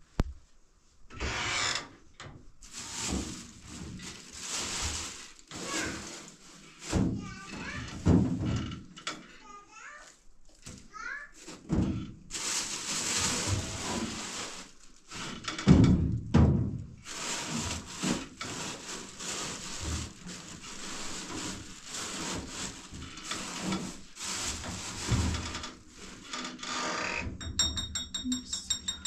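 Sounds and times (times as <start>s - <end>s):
rustling and rubbing in oven: 2.6s - 8.8s, 11.0s - 15.7s, 17.0s - 26.7s.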